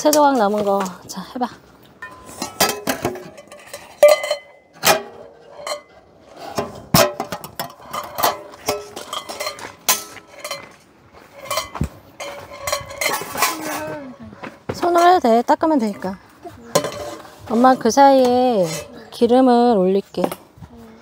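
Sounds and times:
dishes and utensils clinking: 2.0s - 6.0s, 6.6s - 14.2s, 14.8s - 19.4s.

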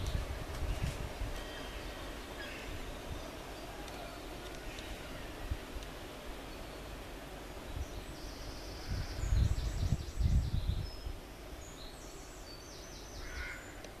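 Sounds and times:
small birds singing: 0.0s - 14.0s.

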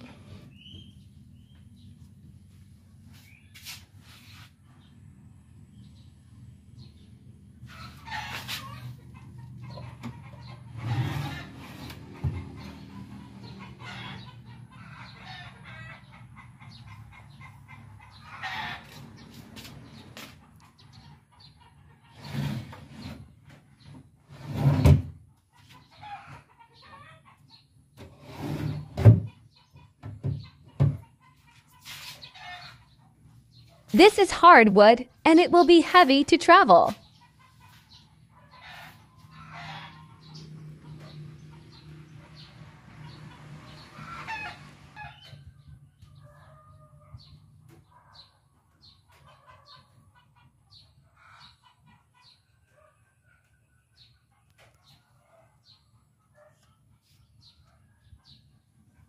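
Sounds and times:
chickens clucking: 6.8s - 22.2s, 25.3s - 28.0s, 28.8s - 34.1s, 36.0s - 53.2s.

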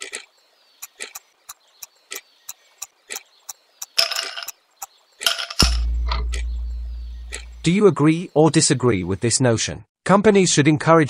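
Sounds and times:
clock ticking: 5.6s - 7.8s.

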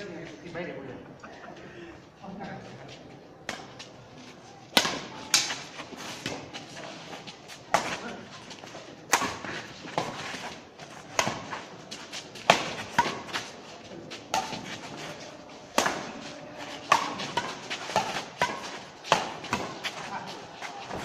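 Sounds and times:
badminton racket hitting shuttlecock: 4.8s - 6.5s, 9.1s - 21.0s.

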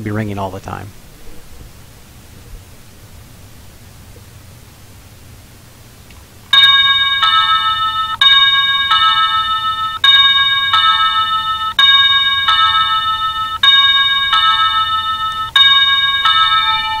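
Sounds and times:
doorbell ding-dong chime: 6.5s - 17.0s.

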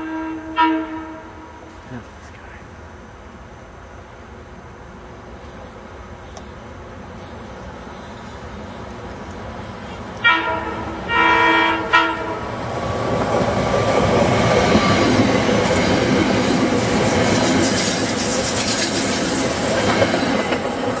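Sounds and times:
train horn blasts: 0.0s - 1.8s, 10.2s - 12.6s
wheels rushing on rails: 4.0s - 21.0s.

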